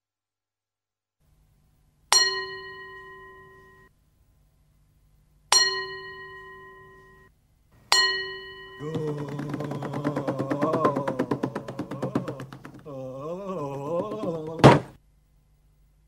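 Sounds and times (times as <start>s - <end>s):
faint low hum: 1.2s - 16.0s
metal bell ringing: 7.9s - 8.8s.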